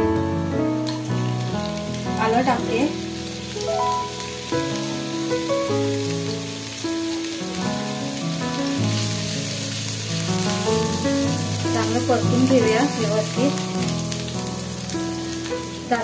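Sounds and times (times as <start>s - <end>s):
background music: 0.0s - 7.1s
garlic sizzling in oil: 0.0s - 16.0s.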